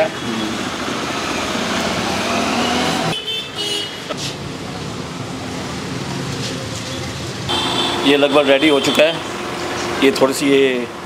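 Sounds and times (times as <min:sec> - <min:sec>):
street traffic humming: 0:00.0 - 0:11.0
vehicle horn tooting: 0:03.1 - 0:04.1, 0:07.5 - 0:09.2.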